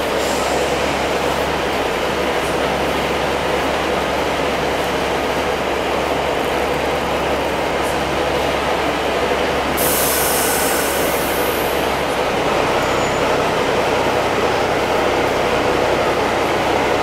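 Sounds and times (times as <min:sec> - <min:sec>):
air brakes hissing: 0:00.0 - 0:01.0, 0:09.8 - 0:12.0
electric train rumbling: 0:00.0 - 0:17.0.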